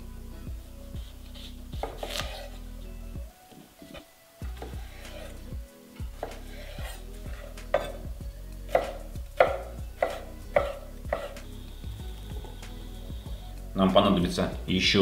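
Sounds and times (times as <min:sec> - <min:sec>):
knife chopping on wooden board: 0:01.8 - 0:02.6, 0:04.5 - 0:05.4, 0:06.2 - 0:08.0, 0:08.7 - 0:11.4.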